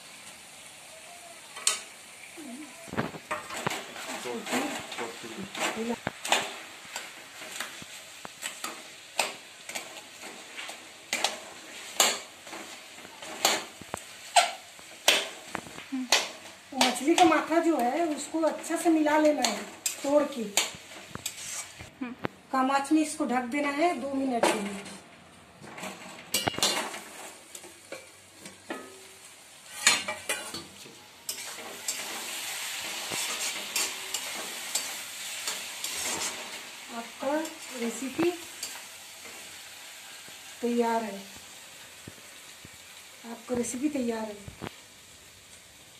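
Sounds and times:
metal spatula scraping a pan: 3.2s - 15.5s, 16.2s - 21.9s, 25.7s - 40.4s
metal lid clanking on pan: 26.3s - 27.0s.

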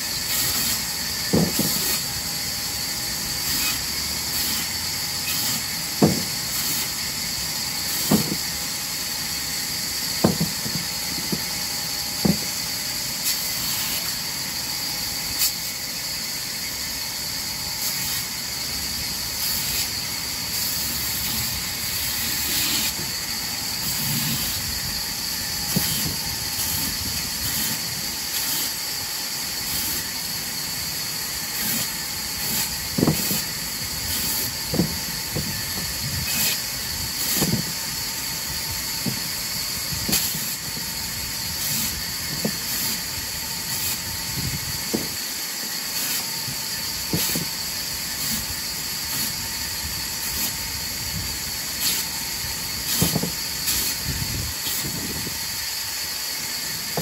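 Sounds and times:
band saw cutting wood: 0.0s - 16.4s, 17.6s - 57.0s
wooden knocks on table: 10.2s - 10.8s.

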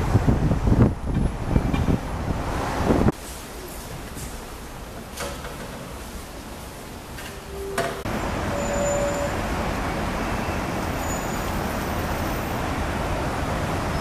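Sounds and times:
busy road traffic: 0.0s - 14.0s
brief tones: 7.4s - 9.4s.

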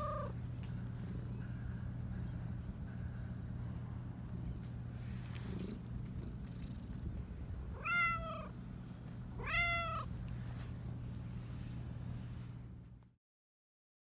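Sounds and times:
cat meowing: 0.0s - 0.4s, 7.7s - 8.6s, 9.4s - 10.1s.

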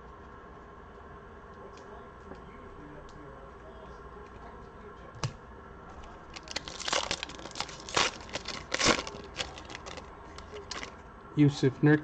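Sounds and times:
foil wrapper crinkling and tearing: 6.3s - 11.0s.

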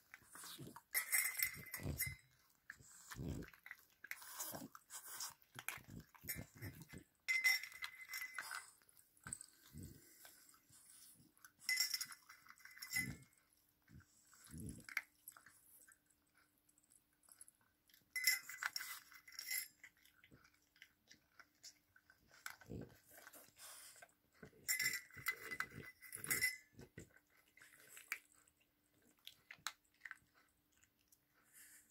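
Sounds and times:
dogs licking and eating kibble: 0.0s - 31.9s
metal bowl clinking: 0.8s - 2.4s, 5.9s - 8.8s, 18.2s - 19.9s, 24.4s - 27.0s.

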